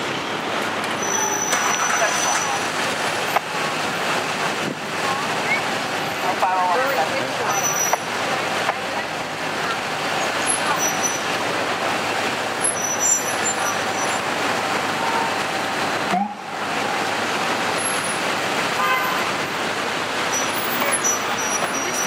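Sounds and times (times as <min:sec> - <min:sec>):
city street traffic: 0:00.0 - 0:22.0.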